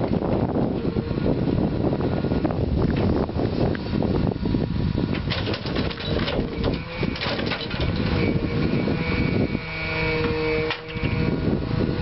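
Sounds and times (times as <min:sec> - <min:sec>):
diesel engine running: 0:00.0 - 0:09.8
hydraulic whine: 0:00.0 - 0:12.0
knocks and rattles: 0:05.1 - 0:08.3.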